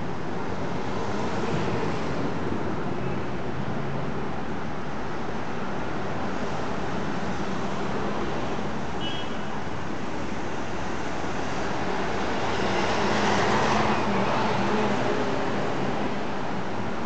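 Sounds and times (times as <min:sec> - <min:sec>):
road noise: 0:00.0 - 0:17.0
bus engine hum: 0:09.8 - 0:17.0.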